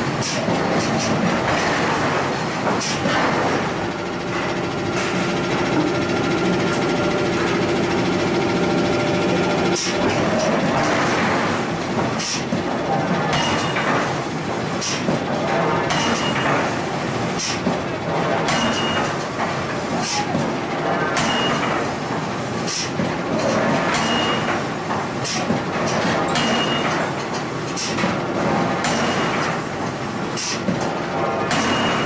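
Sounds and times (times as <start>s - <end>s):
rumbling machinery: 0.0s - 22.4s.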